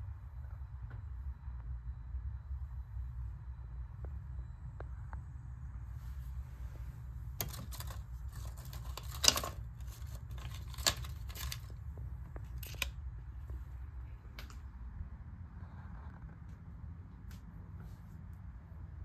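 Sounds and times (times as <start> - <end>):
low steady hum: 0.0 - 19.0
small objects clicking and tapping: 7.4 - 13.0.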